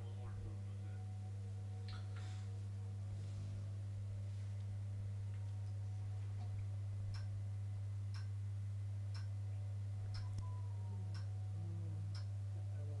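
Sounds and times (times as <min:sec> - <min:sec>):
steady low hum: 0:00.0 - 0:13.0
clock ticking: 0:07.1 - 0:07.3, 0:08.1 - 0:08.3, 0:09.1 - 0:09.4, 0:10.1 - 0:11.3, 0:12.1 - 0:12.3.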